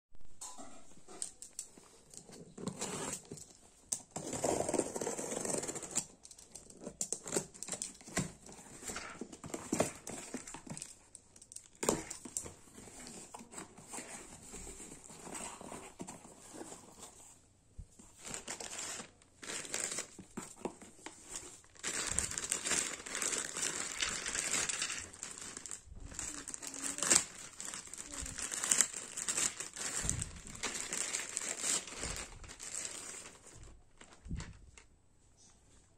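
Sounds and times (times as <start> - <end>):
plastic bag crinkling: 18.1 - 34.9.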